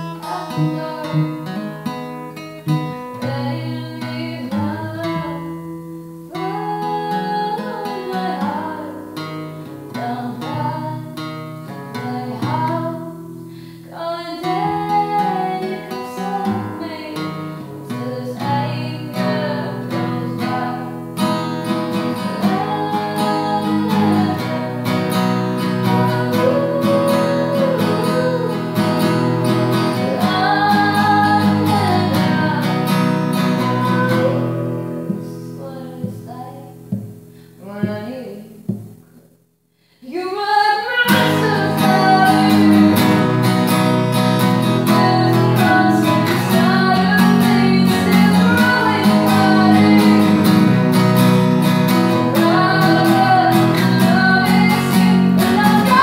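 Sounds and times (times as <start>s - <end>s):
acoustic guitar strumming: 0.0s - 39.3s, 40.8s - 56.0s.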